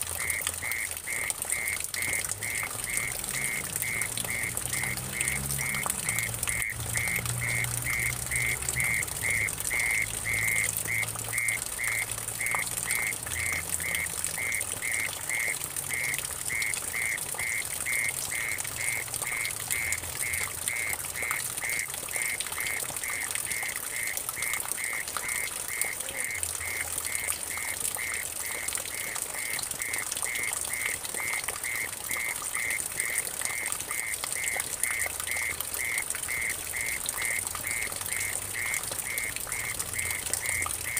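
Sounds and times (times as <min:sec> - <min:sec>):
water trickling into puddle: 0:00.0 - 0:40.9.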